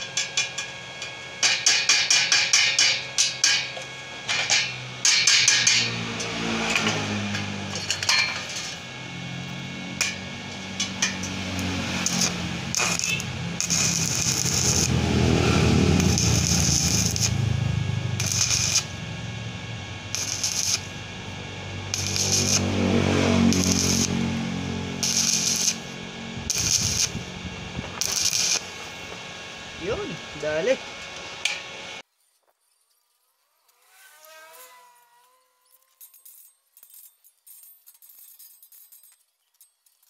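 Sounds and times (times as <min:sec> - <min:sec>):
welding arc crackling: 0:00.0 - 0:32.0
low hum: 0:02.7 - 0:32.0.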